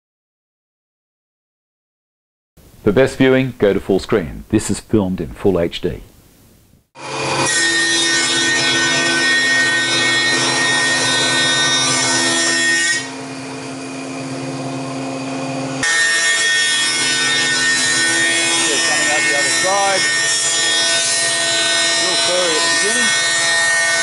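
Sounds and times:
thickness planer cutting a board: 7.0 - 24.0.

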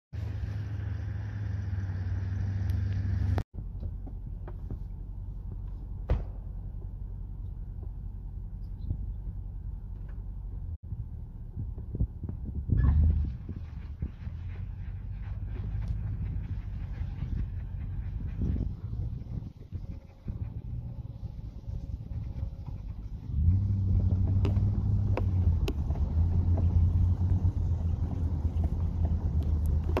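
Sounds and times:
vehicle engine idling: 13.3 - 30.0.

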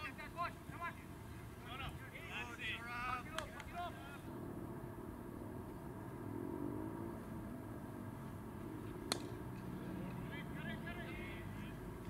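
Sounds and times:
low outdoor hum: 0.0 - 12.0
cricket bat hitting ball: 9.0 - 9.4.

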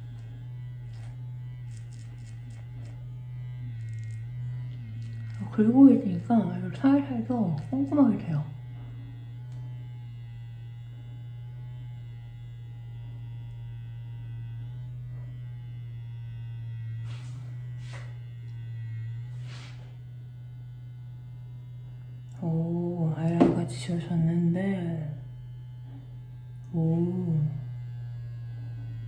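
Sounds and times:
facial cleanser motor humming: 0.0 - 29.0
soft hisses: 19.3 - 20.0.

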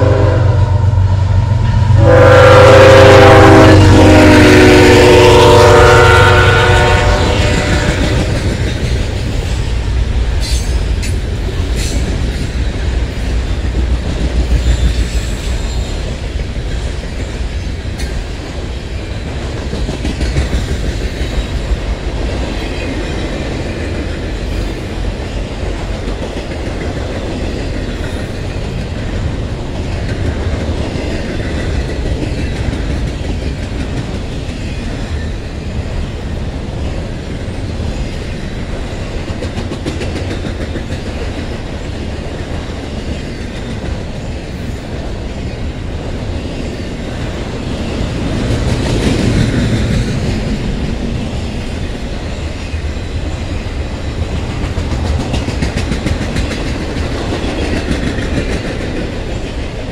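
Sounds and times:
train horn: 0.0 - 8.4
train cars rumbling: 0.0 - 59.9.

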